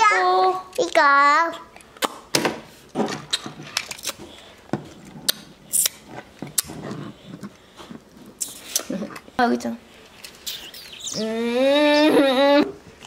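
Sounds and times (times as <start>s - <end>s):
cheek kiss: 5.3s - 6.0s, 10.4s - 12.7s.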